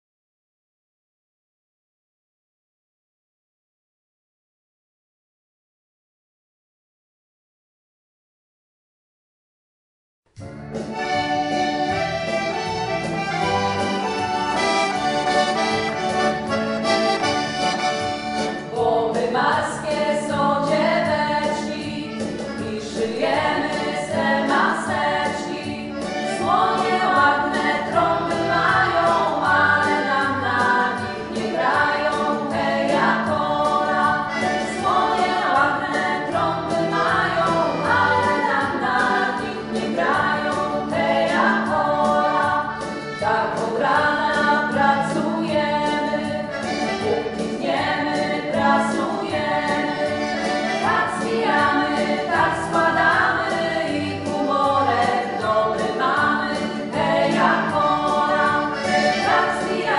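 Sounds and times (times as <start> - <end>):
instrumental held chords: 10.4 - 18.7.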